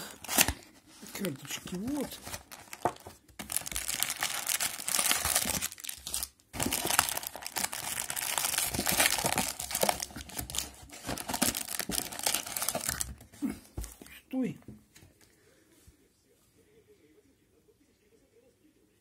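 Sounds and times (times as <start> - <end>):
packaging crinkling and rustling: 0.0 - 14.1.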